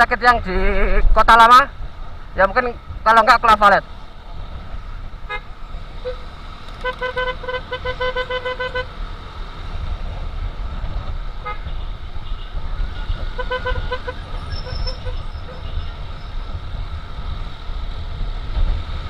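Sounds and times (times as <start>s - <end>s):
engine rumble: 0.0s - 19.0s
wind: 0.0s - 19.0s
motorcycle horn beeping: 5.3s - 9.0s, 11.4s - 15.2s.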